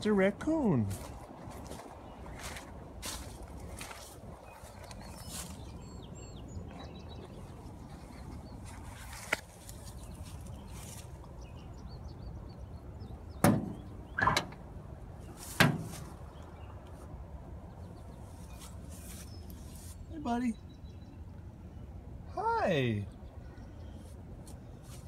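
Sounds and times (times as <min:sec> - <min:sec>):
truck door latch clunks: 0:13.4 - 0:14.6.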